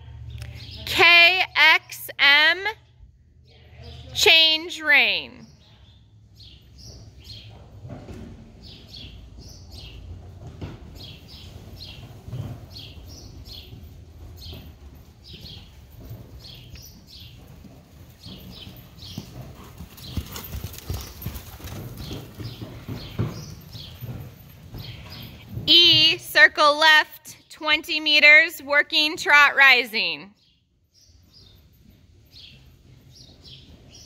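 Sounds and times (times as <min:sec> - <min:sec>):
horse hoofbeats on sand: 0:05.5 - 0:26.9, 0:31.0 - 0:34.0.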